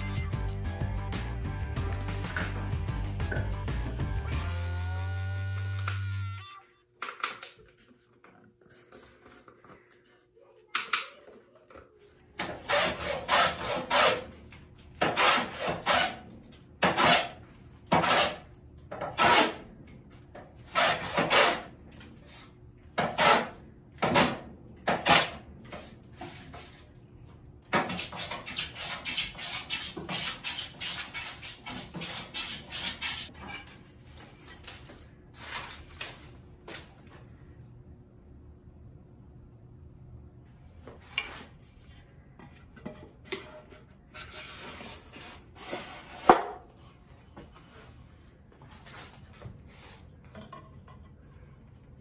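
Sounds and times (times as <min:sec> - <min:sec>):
hand plane shaving wood: 0:12.5 - 0:14.3, 0:15.0 - 0:16.2, 0:17.9 - 0:18.4, 0:27.9 - 0:33.6.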